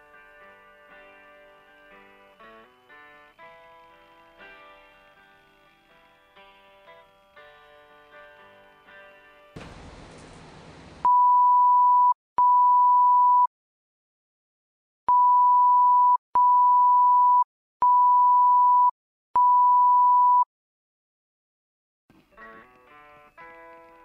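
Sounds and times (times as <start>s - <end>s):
noisy hiss: 9.6s - 11.1s
censor bleeps: 11.0s - 13.5s, 15.1s - 20.5s.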